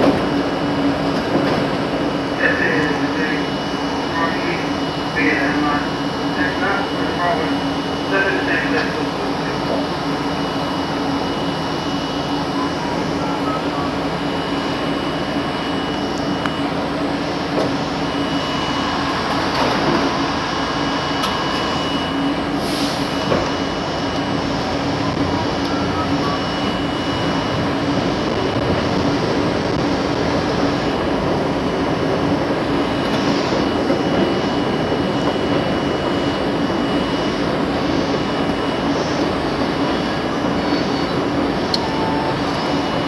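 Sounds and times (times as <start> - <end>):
subway car running noise: 0.0 - 43.0
faint high whine: 2.2 - 24.3.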